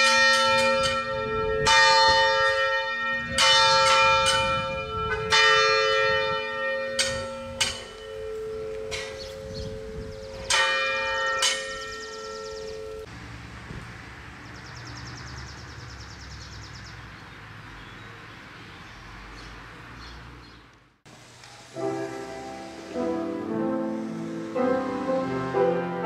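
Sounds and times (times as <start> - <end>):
church bell ringing: 0.0 - 13.1, 21.8 - 26.0.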